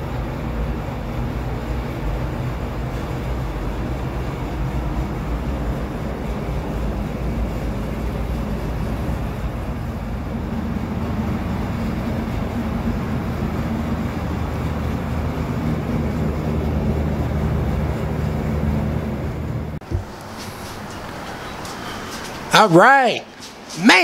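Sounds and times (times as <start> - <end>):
machine droning: 0.0 - 24.0.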